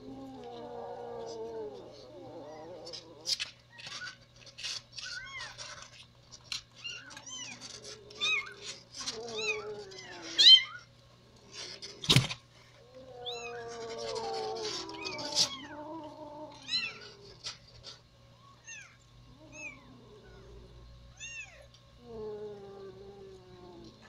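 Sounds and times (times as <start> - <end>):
kittens mewing: 12.9 - 18.0.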